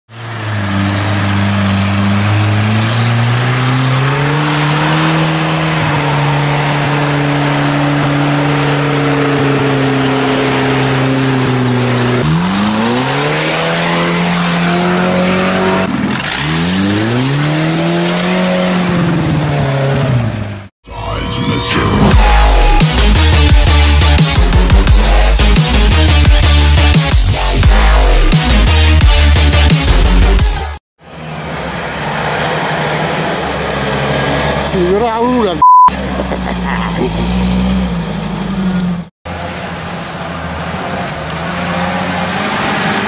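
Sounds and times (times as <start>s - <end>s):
tyres rushing in mud: 0.1s - 20.7s, 31.0s - 43.0s
off-road engine revving: 0.1s - 43.0s.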